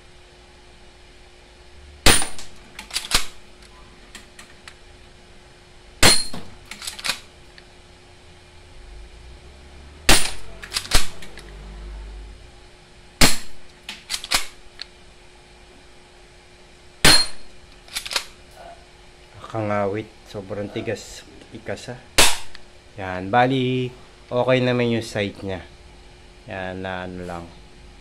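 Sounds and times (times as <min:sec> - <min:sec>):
airsoft pistol shots: 0:02.0 - 0:03.4, 0:06.0 - 0:06.6, 0:10.1 - 0:11.2, 0:13.2 - 0:13.6, 0:17.0 - 0:17.5, 0:22.2 - 0:22.6.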